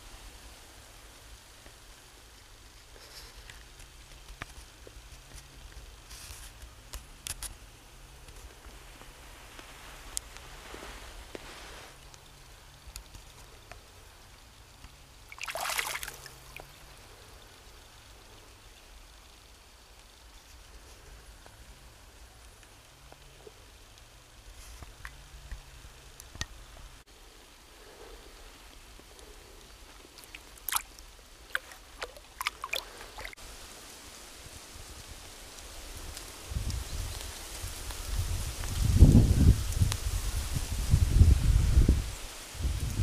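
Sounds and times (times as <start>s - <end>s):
moving water hiss: 0.0s - 43.0s
water sloshing and gurgling: 15.3s - 16.7s, 30.2s - 33.4s.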